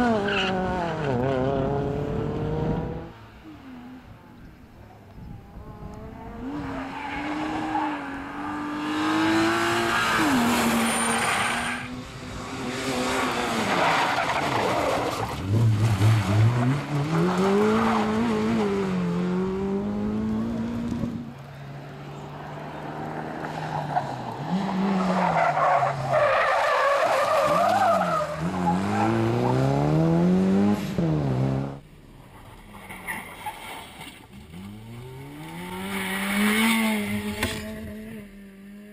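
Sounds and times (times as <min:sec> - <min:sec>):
car engines revving: 0:00.0 - 0:38.9
tyre squeal: 0:09.9 - 0:11.9.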